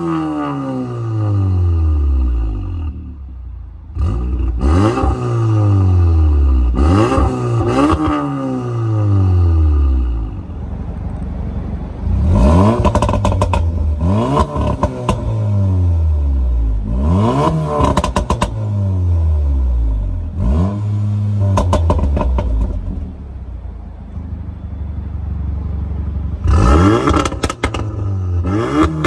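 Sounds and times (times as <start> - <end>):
car engine revving: 3.9 - 11.2, 12.0 - 23.3, 26.2 - 29.0
exhaust crackles and pops: 12.7 - 13.8, 17.8 - 18.6, 21.5 - 23.0, 26.5 - 28.1.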